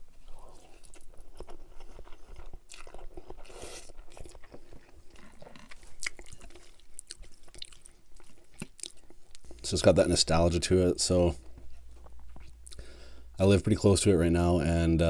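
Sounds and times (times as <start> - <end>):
wet chewing and mouth smacks: 0.1 - 9.7, 11.5 - 12.9.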